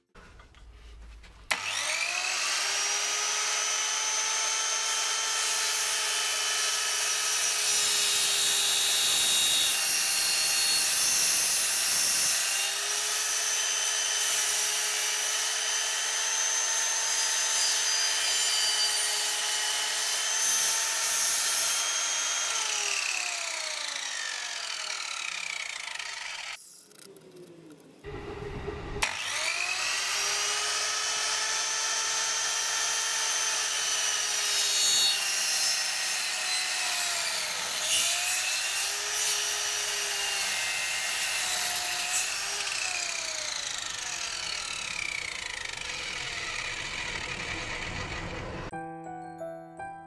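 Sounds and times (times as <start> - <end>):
circular saw whining: 1.5 - 27.1, 28.0 - 48.7.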